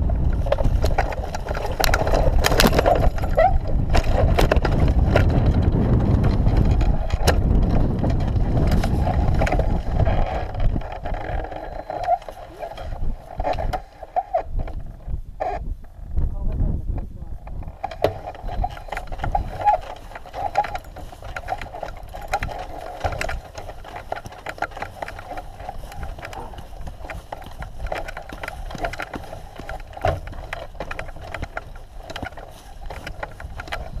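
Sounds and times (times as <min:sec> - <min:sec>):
irregular clicks and knocks: 0:00.0 - 0:16.0, 0:17.4 - 0:34.0
hang glider sail buffeting and rattling: 0:00.0 - 0:34.0.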